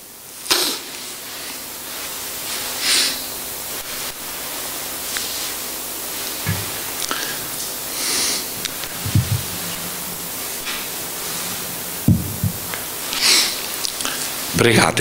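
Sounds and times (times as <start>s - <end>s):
steady hiss: 0.0s - 15.0s
soft dull thumps: 6.4s - 6.8s, 8.9s - 9.9s, 12.0s - 12.9s.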